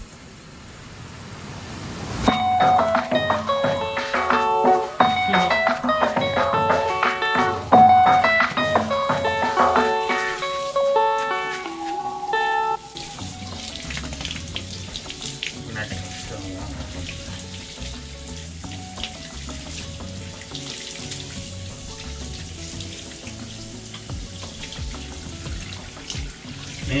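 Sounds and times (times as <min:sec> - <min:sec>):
shower water spraying: 0:00.0 - 0:27.0
background music: 0:02.2 - 0:27.0
small water splashes: 0:12.8 - 0:27.0.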